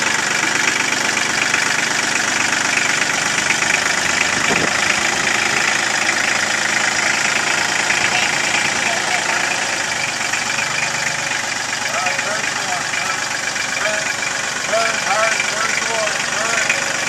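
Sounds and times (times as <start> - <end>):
tractor diesel engine clattering: 0.0 - 17.0.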